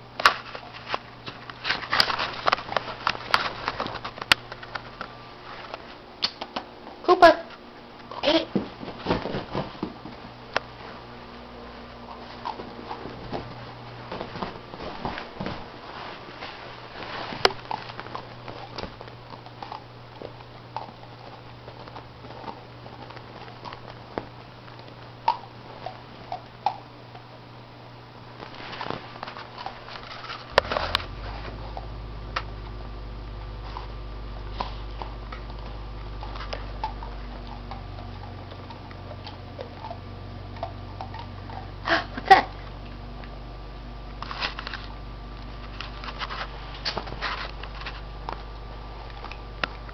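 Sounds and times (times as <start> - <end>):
puppy gnawing ice cube: 17.3 - 27.3.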